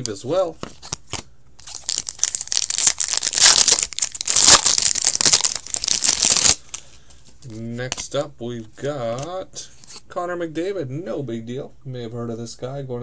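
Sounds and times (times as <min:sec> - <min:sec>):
foil wrapper crinkling and tearing: 0:01.6 - 0:06.8.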